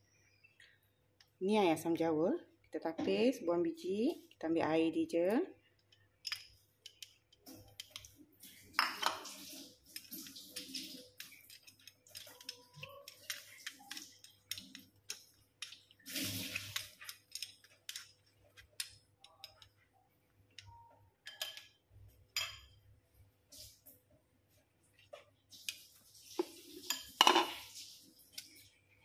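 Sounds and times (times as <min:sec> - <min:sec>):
juice pouring from bowl: 0:08.0 - 0:14.8, 0:15.6 - 0:17.3.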